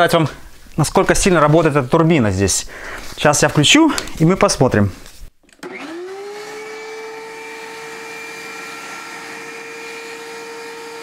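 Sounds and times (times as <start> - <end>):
fan blowing air: 5.6 - 11.0
planer motor whining: 5.6 - 11.0.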